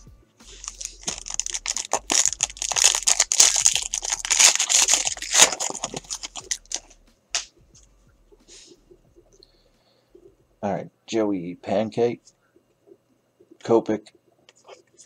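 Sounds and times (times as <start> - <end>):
foil wrapper tearing and crinkling: 0.4 - 7.0.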